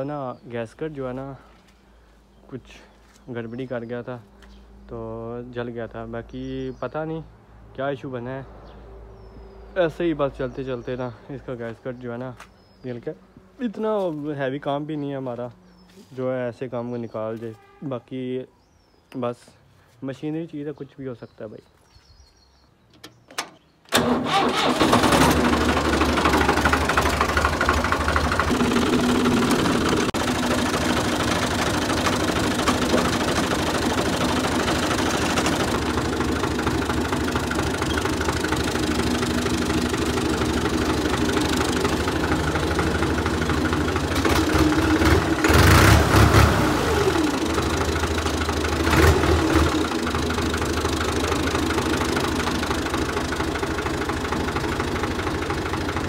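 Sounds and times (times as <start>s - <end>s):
tractor diesel engine starting and idling: 23.0s - 56.0s
engine revving: 24.0s - 52.6s.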